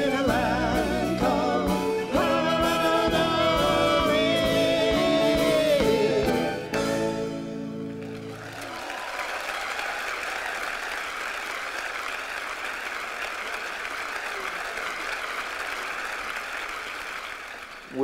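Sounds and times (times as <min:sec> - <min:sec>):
audience applauding: 0:07.5 - 0:18.0.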